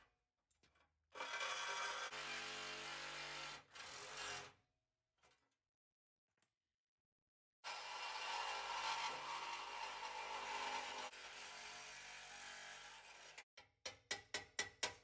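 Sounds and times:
reciprocating saw cutting steel: 0:07.7 - 0:13.5.

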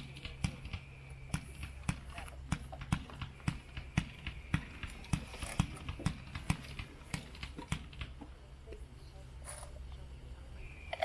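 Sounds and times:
fireworks launch pops: 0:00.0 - 0:08.3.

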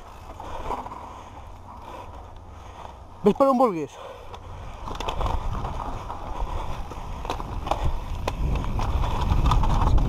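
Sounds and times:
bike clicks and rattles: 0:00.0 - 0:10.0
tyres crunching on dirt: 0:00.0 - 0:10.0
wind buffeting microphone: 0:04.4 - 0:10.0.

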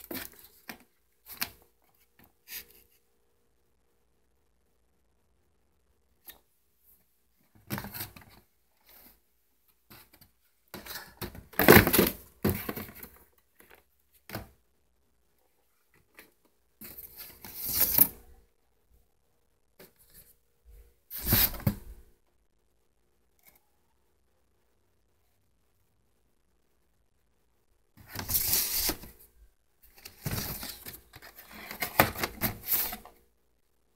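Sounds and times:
cardboard and plastic packaging rustling: 0:00.0 - 0:02.7, 0:09.9 - 0:14.6, 0:28.0 - 0:29.2, 0:29.9 - 0:33.2.

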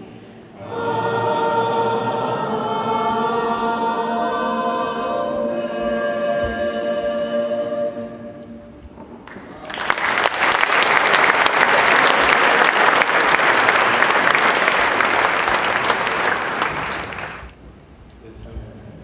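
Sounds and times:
audience applauding: 0:09.2 - 0:17.6.

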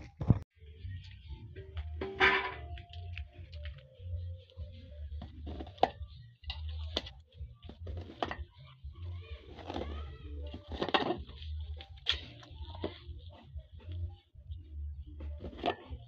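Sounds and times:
metal spoon scraping in pot: 0:09.4 - 0:13.5, 0:15.4 - 0:16.0.

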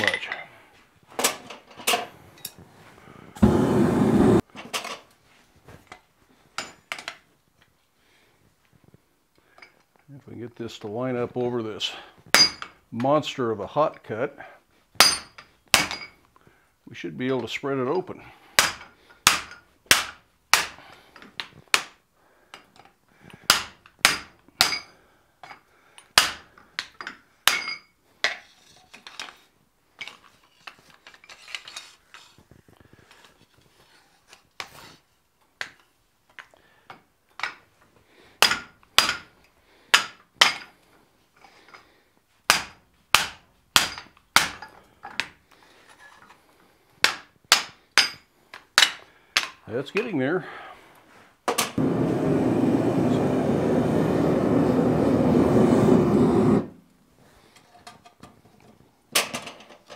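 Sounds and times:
mallet striking hot steel on anvil: 0:18.6 - 0:20.8.

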